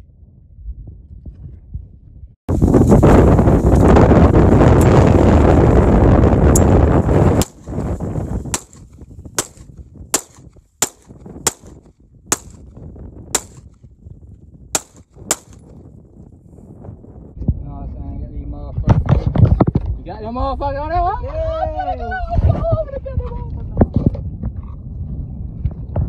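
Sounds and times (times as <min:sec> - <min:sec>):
wind rumble on microphone: 0:00.0 - 0:26.0
handgun shots: 0:07.4 - 0:07.7, 0:08.6 - 0:12.6, 0:13.4 - 0:13.7, 0:14.8 - 0:15.6.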